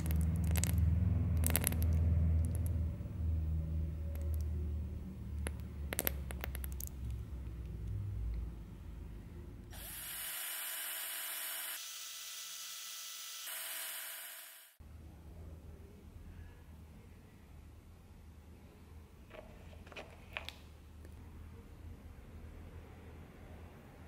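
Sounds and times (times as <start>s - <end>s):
electric drill stirring liquid: 9.7s - 14.8s.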